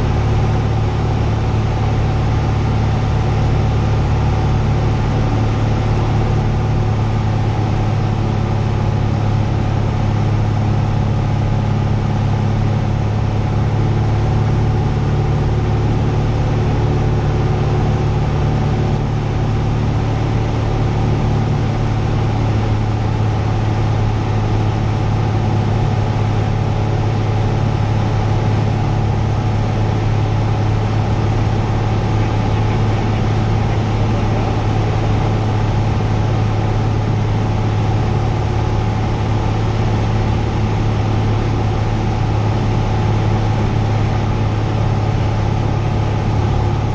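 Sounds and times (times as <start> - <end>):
aircraft engine and propeller hum: 0.0 - 46.9
air noise: 29.2 - 42.8.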